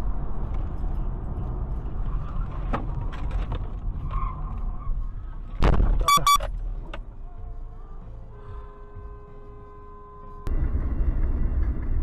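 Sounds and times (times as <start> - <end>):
car road and engine noise: 0.0 - 12.0
short high-pitched beeps: 6.0 - 6.5.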